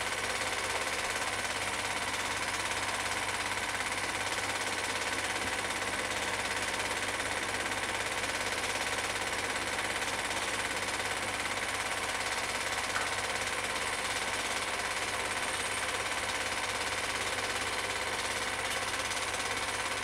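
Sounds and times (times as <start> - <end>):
film projector clattering: 0.0 - 20.0
small click: 12.9 - 13.2, 18.7 - 18.9.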